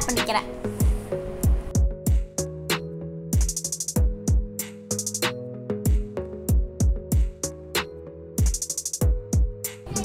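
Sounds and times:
drum machine beat: 0.0 - 2.8, 3.4 - 10.0.

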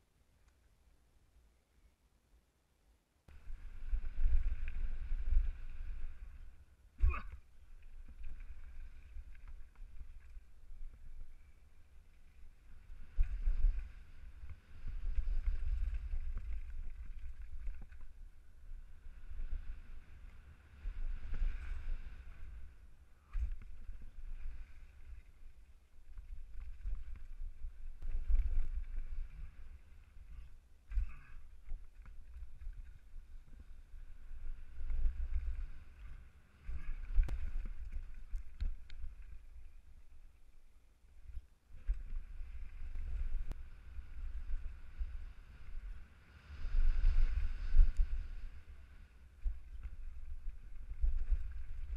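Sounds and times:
wind rumbling on microphone: 3.3 - 51.9
wind buffeting microphone: 41.8 - 51.9.

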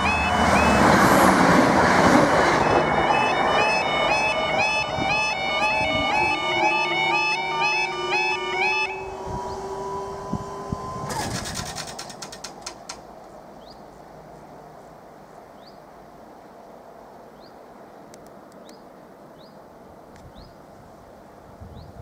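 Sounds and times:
barrier boom rattling clicks: 11.1 - 13.1
bird chirping: 13.5 - 14.0, 15.5 - 15.8, 17.3 - 17.6, 18.6 - 19.6.

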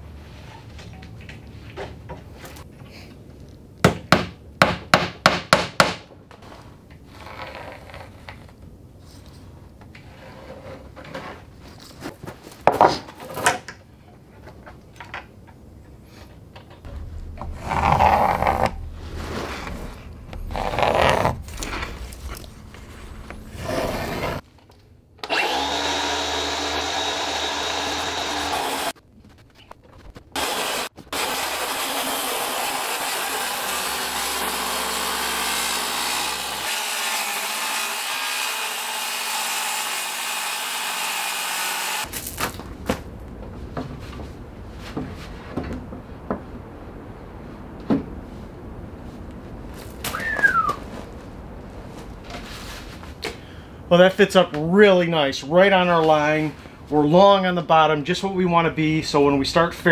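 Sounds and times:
hammer driving nails into wood: 3.8 - 6.1
circular saw whining: 25.2 - 28.9.

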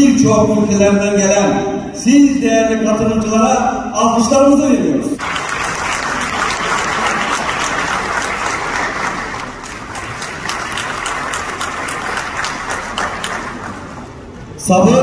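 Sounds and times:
audience applauding: 5.2 - 14.3.

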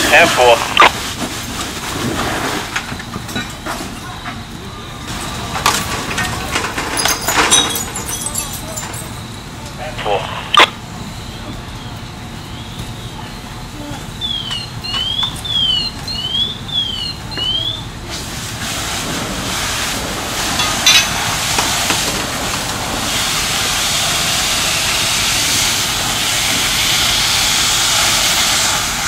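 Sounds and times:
hose water hissing on fire: 0.0 - 4.0, 17.1 - 29.0
warbling electronic alarm: 8.9 - 17.9.

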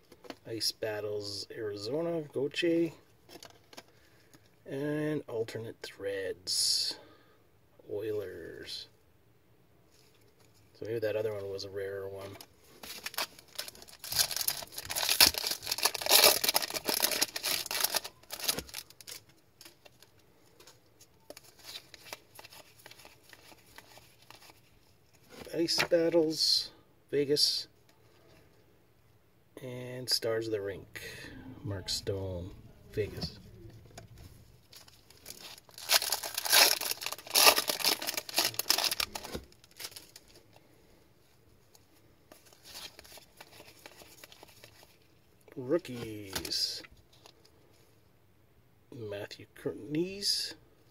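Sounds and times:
faint rustling of cards: 2.4 - 4.6, 9.8 - 29.1, 31.8 - 48.2
foil pack tearing: 13.0 - 18.8, 35.2 - 40.0.

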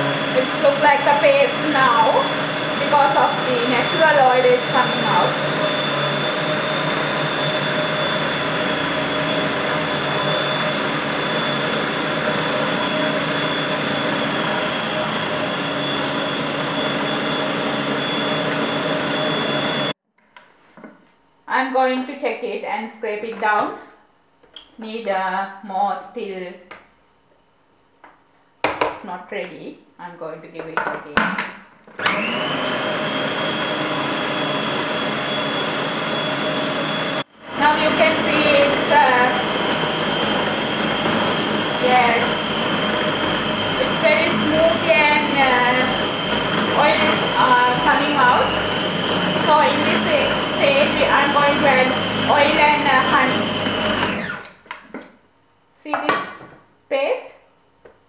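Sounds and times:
food processor motor whining: 0.0 - 20.0, 31.9 - 54.9.

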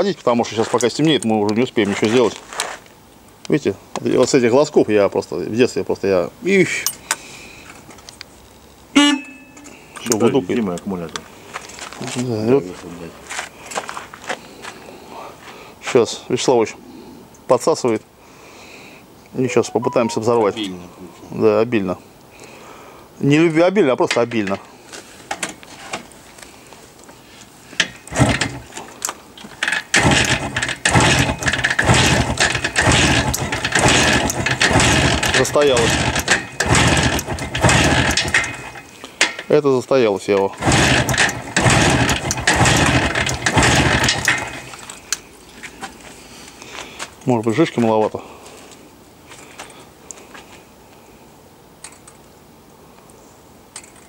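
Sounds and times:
background hiss: 12.8 - 23.8
motorcycle engine starting: 28.1 - 28.7, 29.6 - 38.9, 40.5 - 44.9.

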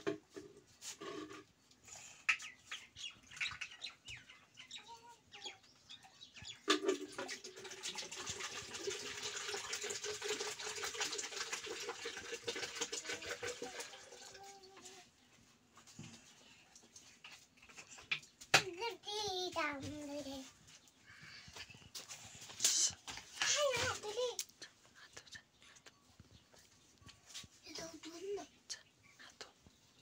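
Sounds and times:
metal pot knocks and clinks: 6.6 - 7.8
water pouring into plastic jug: 6.6 - 14.9.

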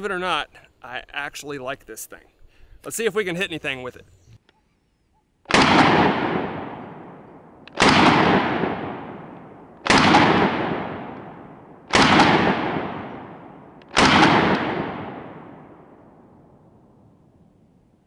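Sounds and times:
pistol shots with echo: 5.5 - 16.3.

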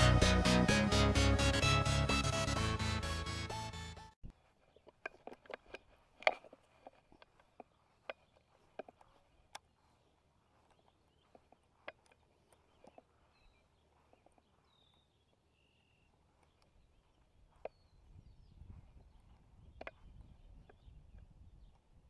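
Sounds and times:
faint bird chirps: 7.8 - 21.9
faint clicks and ticks: 10.5 - 15.0.

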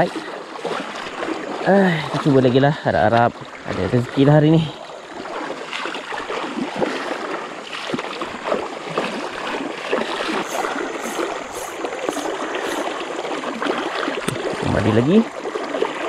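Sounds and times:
water splashing around wading legs: 0.0 - 16.0
river current rushing: 3.4 - 16.0.

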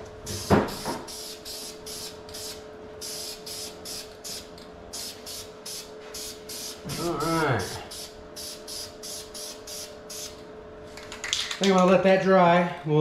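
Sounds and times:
spray can hissing in bursts: 0.3 - 6.8, 7.6 - 10.4.

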